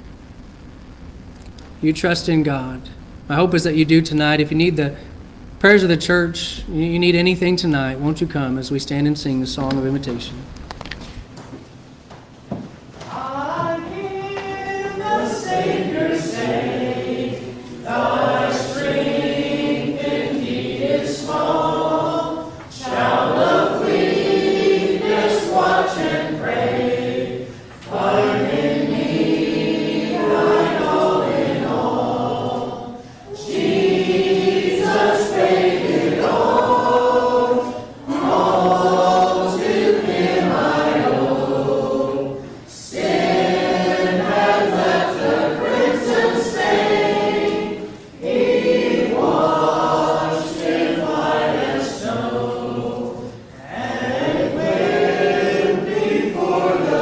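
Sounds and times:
congregation singing a hymn: 0:12.5 - 0:57.0.

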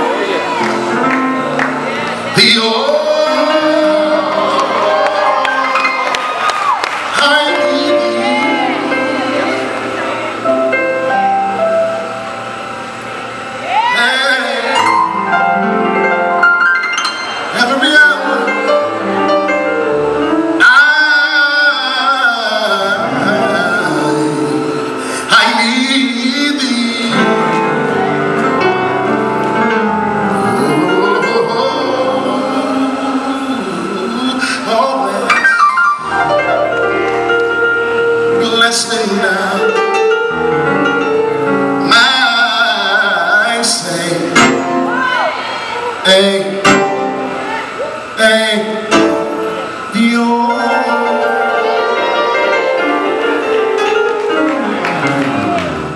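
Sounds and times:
sustained keyboard chords: 0:00.0 - 0:55.9.

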